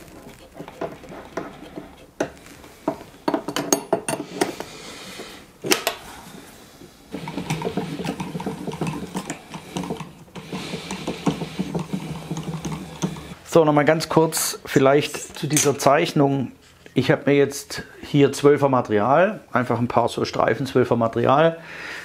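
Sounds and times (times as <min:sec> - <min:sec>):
spanner clinking on metal: 0:03.3 - 0:04.6.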